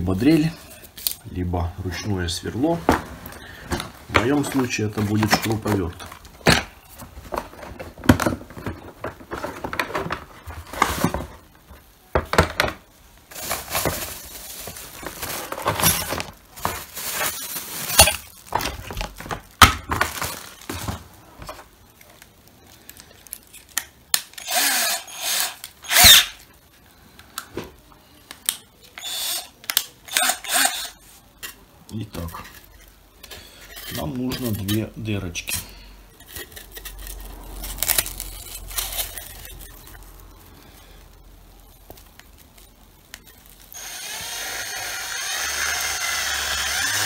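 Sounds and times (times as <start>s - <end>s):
cordless drill spurts: 24.4s - 26.4s, 29.0s - 29.5s, 30.1s - 31.0s, 43.8s - 47.0s.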